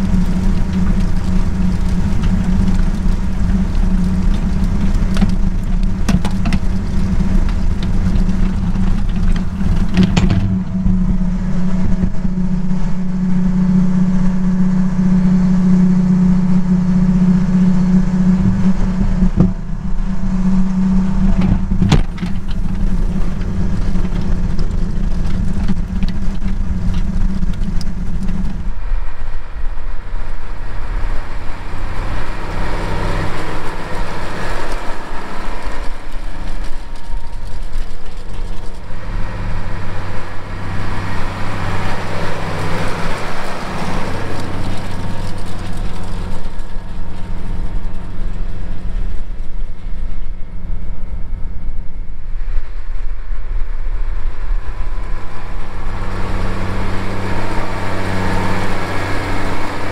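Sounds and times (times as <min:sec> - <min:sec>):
hoe wheels churning and rattling: 0:00.0 - 0:12.6, 0:21.0 - 0:29.0, 0:30.0 - 0:51.3
rushing noise of tractor working: 0:00.0 - 0:59.9
tractor diesel engine running: 0:00.0 - 0:59.9.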